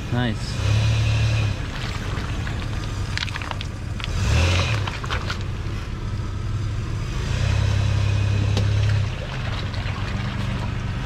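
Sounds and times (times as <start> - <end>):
car engine at low revs: 0.0 - 11.0
tyres crunching over mud and stones: 1.5 - 6.1.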